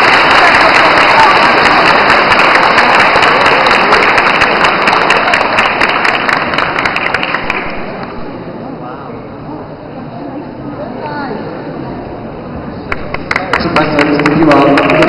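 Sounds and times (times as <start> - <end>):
audience applauding: 0.0 - 8.1, 12.9 - 15.0.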